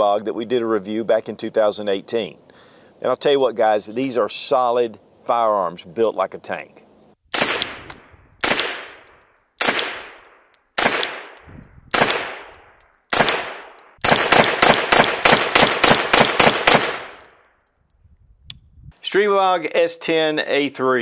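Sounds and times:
pistol shots: 0:07.3 - 0:17.4.

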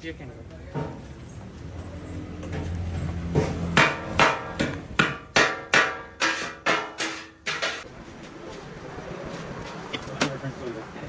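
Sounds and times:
metal blades clanging on griddle: 0:05.4 - 0:07.8.

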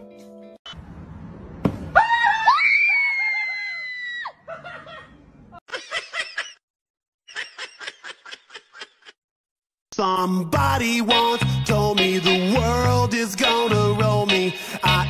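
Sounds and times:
high-pitched scream: 0:01.9 - 0:04.4.

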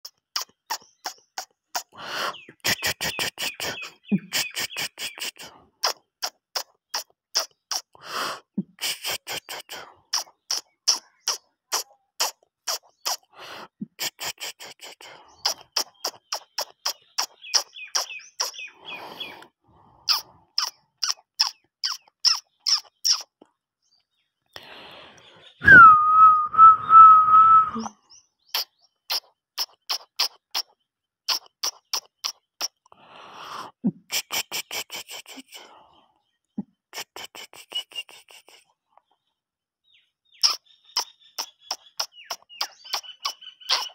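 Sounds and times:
puppies squeaking and yipping: 0:40.4 - 0:43.9.

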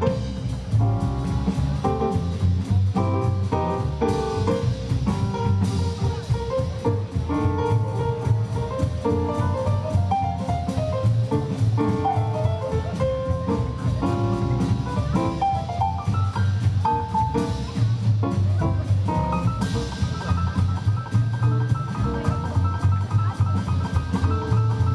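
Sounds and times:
drum strikes: 0:00.0 - 0:24.9
piano notes: 0:00.0 - 0:24.9
walking bass line: 0:00.0 - 0:24.9.

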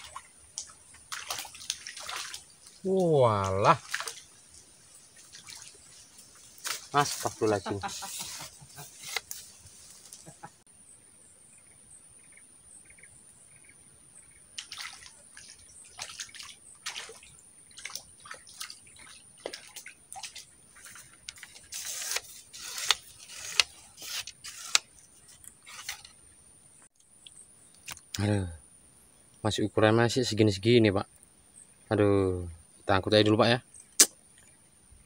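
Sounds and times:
fish splashing at surface: 0:00.0 - 0:02.7, 0:03.7 - 0:04.6, 0:14.6 - 0:22.0.

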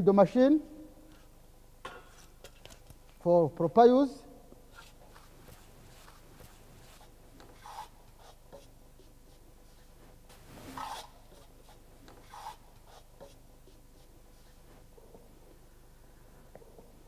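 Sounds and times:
faint scrapes and rubs: 0:04.7 - 0:15.0.

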